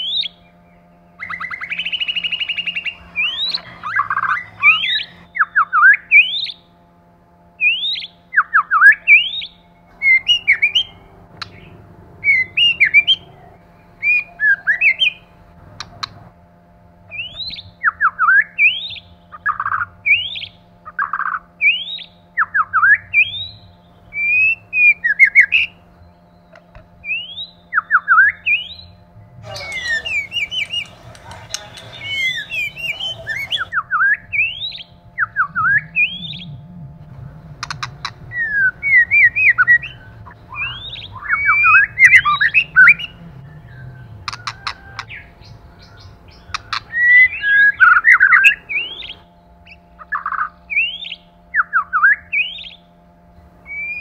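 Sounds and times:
bird singing whistled phrases: 0:01.1 - 0:06.6, 0:07.6 - 0:13.3, 0:17.1 - 0:36.6, 0:37.6 - 0:52.9, 0:53.7 - 0:54.0
bird chattering notes: 0:01.2 - 0:06.6, 0:07.6 - 0:16.3, 0:26.5 - 0:51.3.

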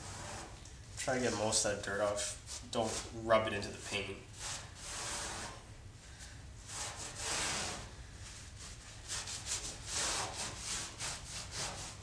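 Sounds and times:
cloth wiping over panel: 0:03.8 - 0:12.0.

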